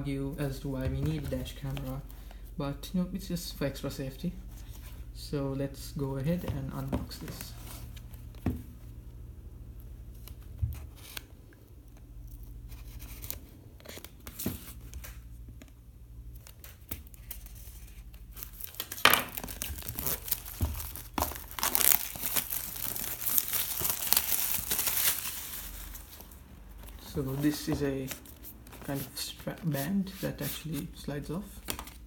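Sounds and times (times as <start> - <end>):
plastic wrap crinkling and tearing: 17.1 - 27.0.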